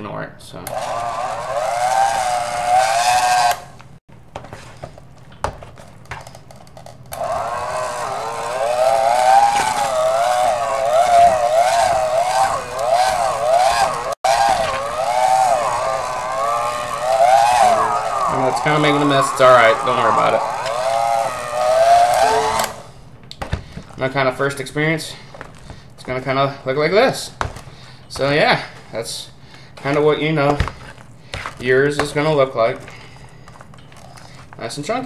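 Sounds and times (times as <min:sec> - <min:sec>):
electric hand mixer whining: 0:00.7 - 0:04.0, 0:07.1 - 0:23.0.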